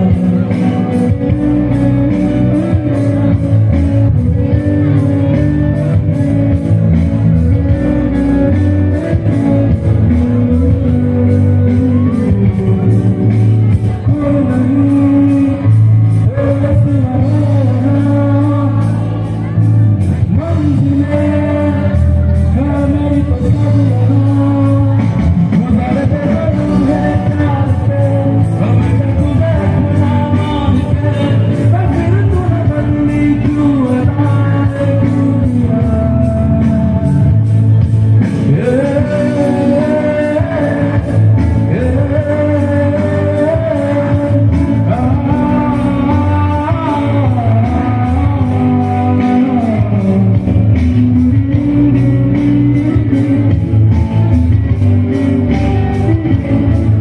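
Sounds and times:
live band playing: 0:00.0 - 0:57.0
man singing into microphone: 0:00.0 - 0:57.0.

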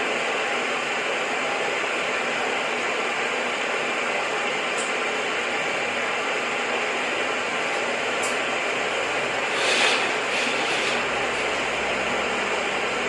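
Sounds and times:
steady hiss: 0:09.4 - 0:12.1.

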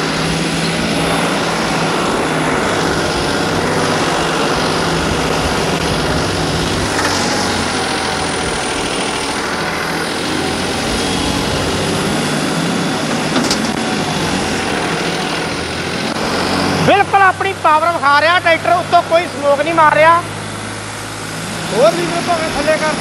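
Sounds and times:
tractor diesel engine under load: 0:00.0 - 0:23.0.

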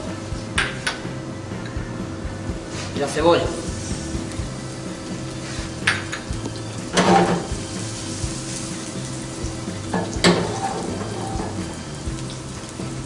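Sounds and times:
onion sizzling in frying pan: 0:00.0 - 0:13.0
pan clattering: 0:05.2 - 0:07.7, 0:09.8 - 0:11.7.

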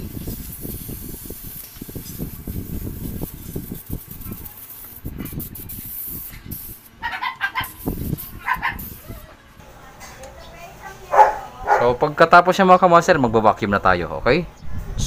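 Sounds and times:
refrigerant gas hissing from tube: 0:00.0 - 0:09.3
small dog yapping: 0:07.0 - 0:07.8, 0:08.4 - 0:09.4, 0:11.1 - 0:11.9.

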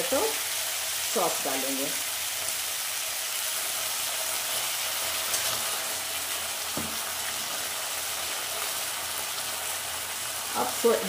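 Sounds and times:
onions sizzling in hot oil: 0:00.0 - 0:11.0
light knock: 0:06.8 - 0:07.0.

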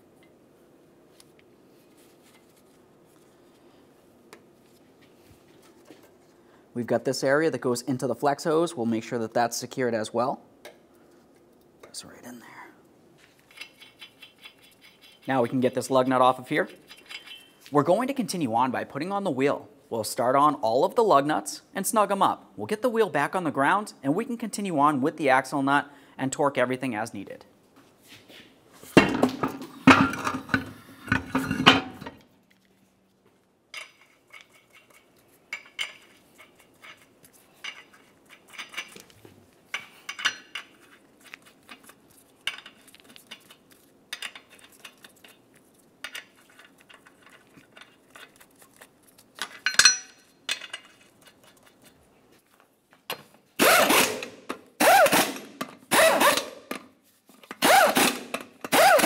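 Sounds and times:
impact wrench bursts: 0:53.6 - 0:56.6, 0:57.6 - 0:59.0.

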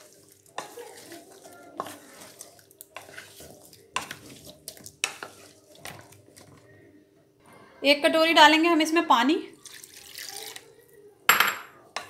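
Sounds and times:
wet mixing of food: 0:00.0 - 0:07.0, 0:09.5 - 0:11.1.

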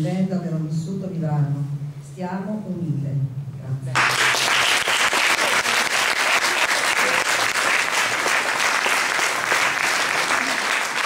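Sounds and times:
crowd applauding: 0:04.0 - 0:11.0.

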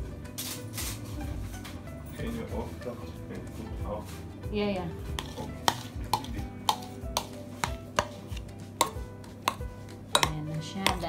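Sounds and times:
metal spoon clinking ceramic bowl: 0:05.2 - 0:08.2, 0:08.8 - 0:11.0.

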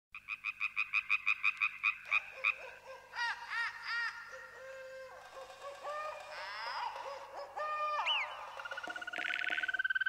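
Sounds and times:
animal calls: 0:01.2 - 0:10.0.

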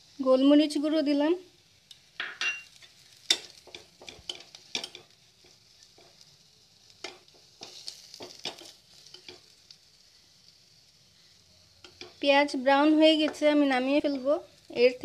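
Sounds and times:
onions sizzling in oil: 0:00.0 - 0:15.0
metal spatula scraping a pan: 0:02.5 - 0:06.2, 0:07.0 - 0:09.7.

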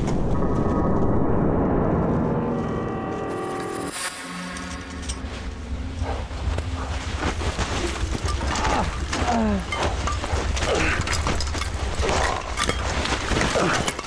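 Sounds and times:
footsteps crunching through snow: 0:03.1 - 0:13.9.

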